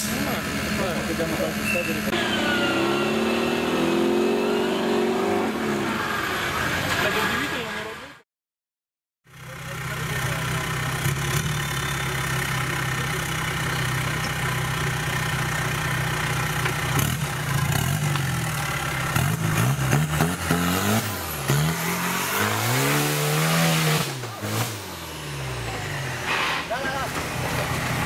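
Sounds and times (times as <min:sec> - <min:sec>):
off-road engine revving: 0:00.0 - 0:08.0, 0:09.3 - 0:28.0.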